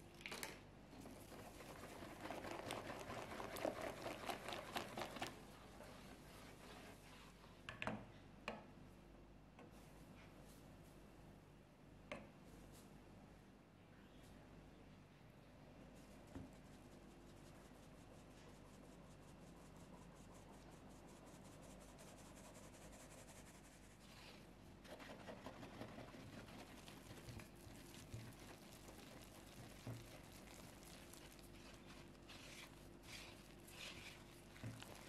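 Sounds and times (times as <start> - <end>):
whisk scraping through dough: 1.0 - 7.3, 16.5 - 35.0.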